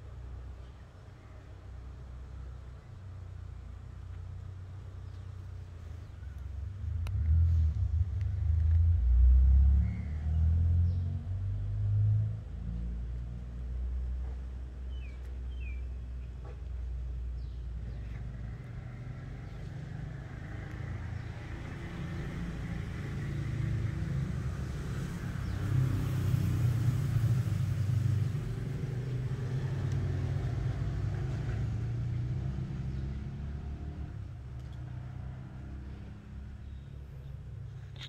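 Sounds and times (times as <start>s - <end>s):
motor vehicle passing by: 6.0s - 14.4s, 17.4s - 38.0s.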